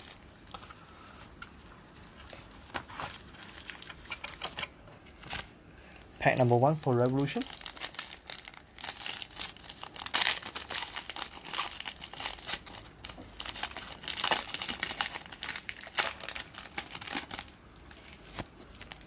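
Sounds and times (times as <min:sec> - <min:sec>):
foil wrapper tearing and crinkling: 0:02.7 - 0:04.6, 0:06.3 - 0:19.0.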